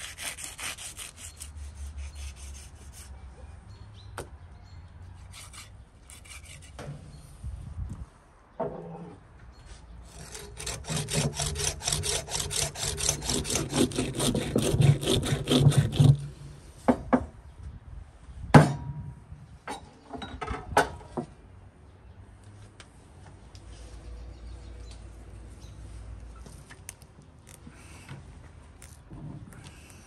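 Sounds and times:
blade scraping against bone: 0.0s - 3.0s, 5.3s - 6.8s, 10.1s - 16.3s.

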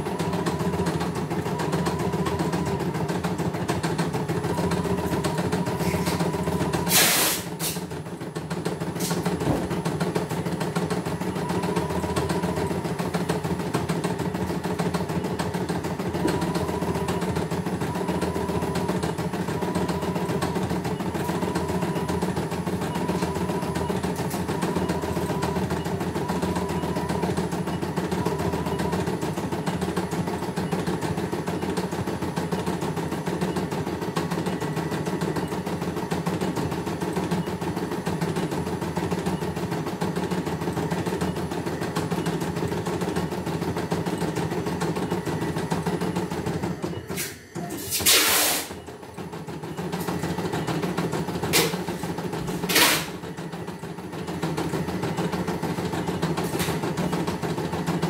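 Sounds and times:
motor hum: 0.0s - 7.0s, 7.6s - 47.7s.

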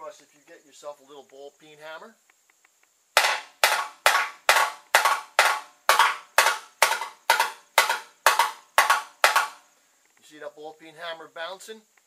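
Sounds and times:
hammer tapping thin steel: 3.2s - 9.6s.

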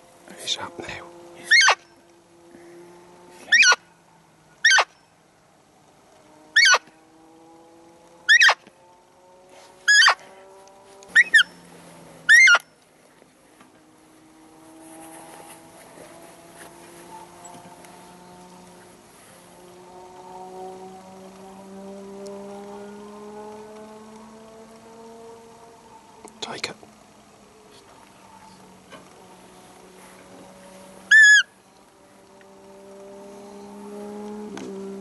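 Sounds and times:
deer call squeaks: 1.4s - 1.9s, 3.4s - 3.8s, 4.6s - 5.0s, 6.6s - 6.9s, 8.3s - 8.6s, 9.9s - 10.3s, 11.1s - 11.6s, 12.3s - 12.7s, 31.1s - 31.5s.

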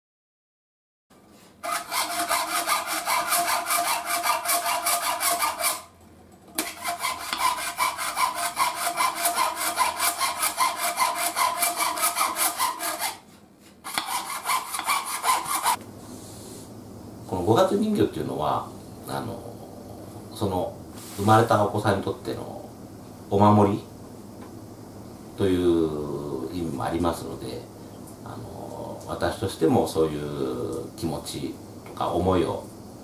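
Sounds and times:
hand saw cutting metal: 1.6s - 5.9s, 6.6s - 13.2s, 13.8s - 15.8s.

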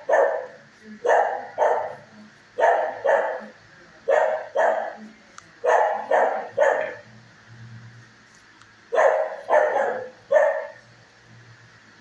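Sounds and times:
dog barking with echo: 0.0s - 2.0s, 2.6s - 3.5s, 4.1s - 5.0s, 5.6s - 7.0s, 8.9s - 10.8s.

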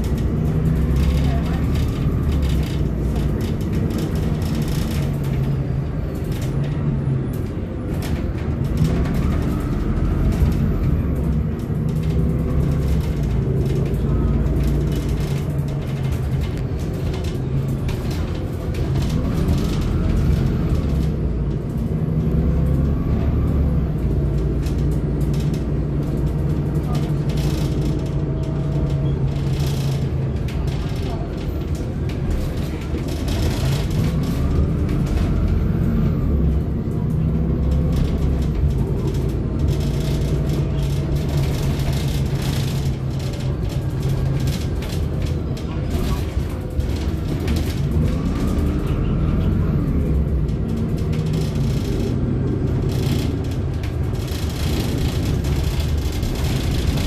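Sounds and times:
bus diesel engine accelerating: 0.0s - 57.0s
road rumble: 0.0s - 57.0s
interior rattles: 23.9s - 57.0s.

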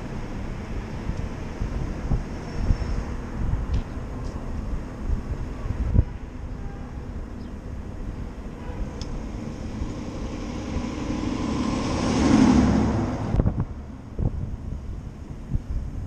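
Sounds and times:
city traffic: 0.0s - 16.0s
wind noise: 0.0s - 16.0s
fire engine passing: 7.0s - 15.4s.

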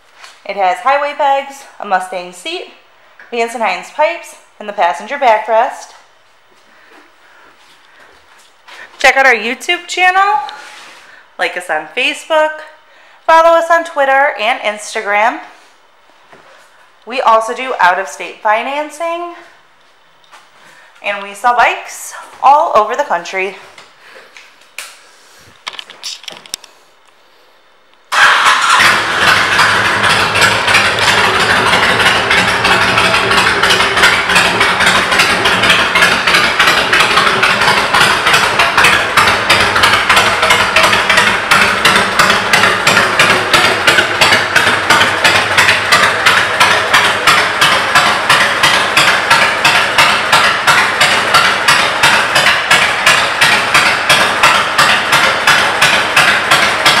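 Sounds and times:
motorcycle engine idling: 28.1s - 57.0s.

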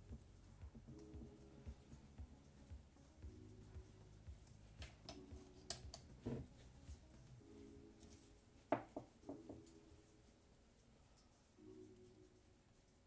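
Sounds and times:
faint background music: 0.0s - 13.0s
faint sharp clicks and taps: 0.1s - 7.3s.

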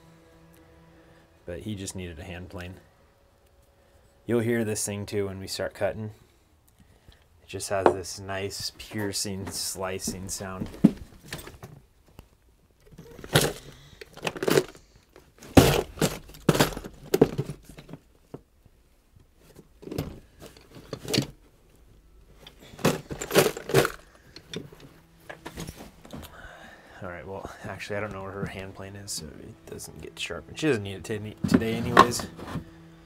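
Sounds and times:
tools clinking and rattling: 12.8s - 18.0s, 19.8s - 21.4s, 22.3s - 26.2s.

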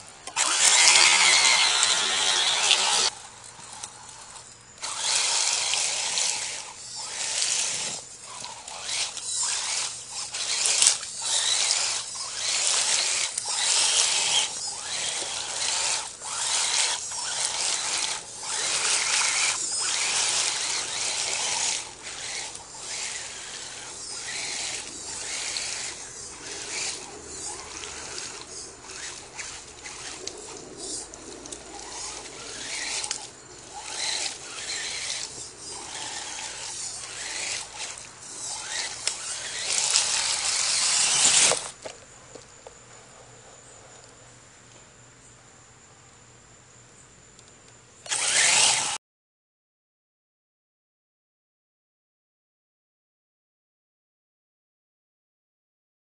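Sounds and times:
rc truck motor whine: 0.0s - 42.5s, 47.4s - 49.0s.

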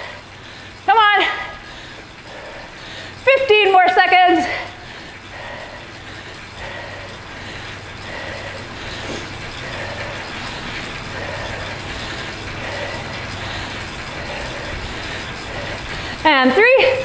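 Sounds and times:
bike trainer whirring: 0.0s - 17.0s
low steady hum: 0.0s - 17.0s.

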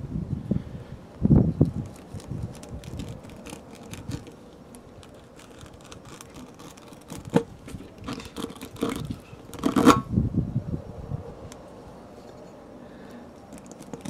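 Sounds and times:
reamer rasping in tyre rubber: 1.6s - 10.1s.

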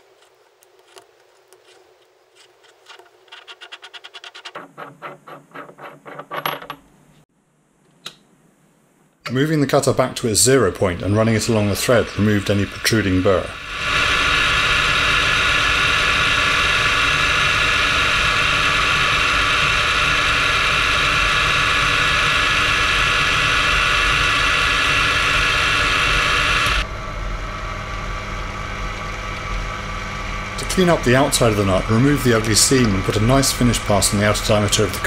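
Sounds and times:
low running hum: 7.0s - 35.0s
lathe running with high whine: 10.3s - 35.0s.

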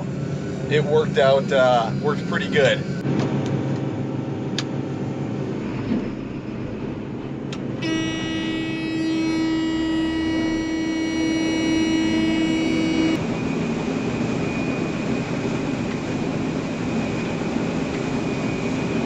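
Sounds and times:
combine harvester running: 0.0s - 19.0s
loud steady buzzer tone: 0.8s - 3.0s, 7.7s - 13.2s.

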